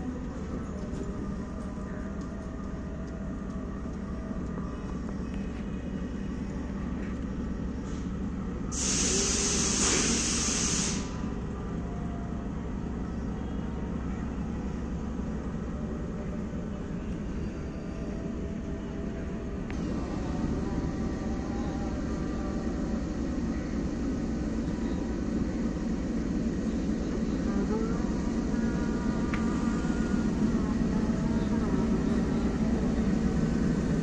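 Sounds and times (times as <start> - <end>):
locomotive engine rumbling: 0.0 - 34.0
hiss of released air: 8.7 - 11.2.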